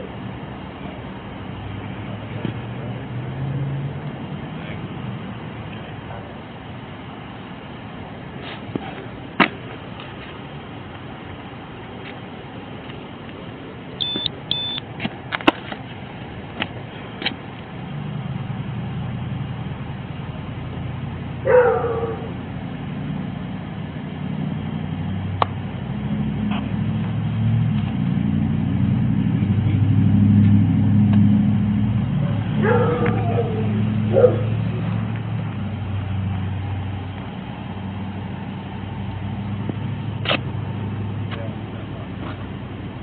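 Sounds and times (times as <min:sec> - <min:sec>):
vehicle engine rumbling: 0:00.0 - 0:43.0
dog barking: 0:21.4 - 0:22.4, 0:32.2 - 0:34.6.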